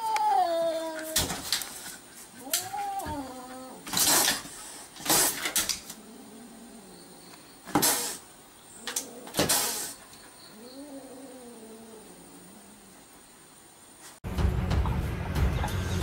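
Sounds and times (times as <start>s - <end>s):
kitten meowing low: 0.0s - 1.2s, 2.4s - 3.8s
kitten hissing: 0.2s - 6.8s, 7.7s - 8.3s, 8.9s - 12.5s.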